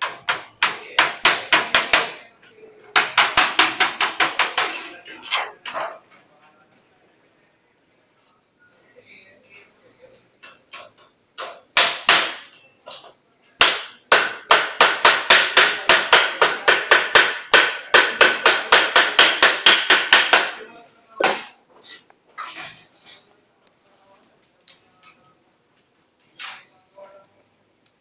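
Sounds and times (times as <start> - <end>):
wooden bar beating sheet steel: 0.0 - 2.3, 2.9 - 6.0, 10.5 - 21.6.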